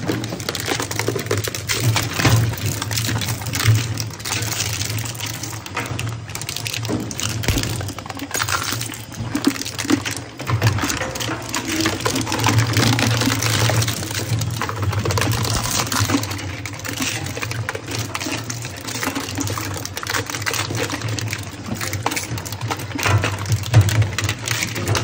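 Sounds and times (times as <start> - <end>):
scrap metal crunching and snapping: 7.0 - 8.9, 15.0 - 16.4.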